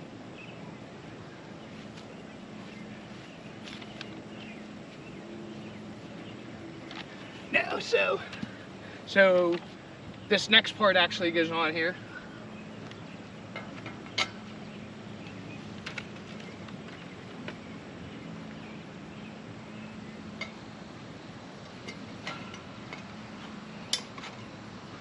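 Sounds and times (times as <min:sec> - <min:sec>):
low background hum: 0:00.0 - 0:25.0.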